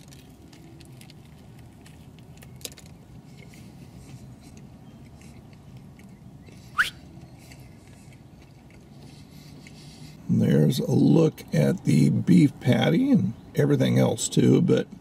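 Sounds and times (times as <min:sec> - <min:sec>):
wet chewing clicks: 0:00.0 - 0:10.3
sharp rising squeak: 0:06.8 - 0:07.0.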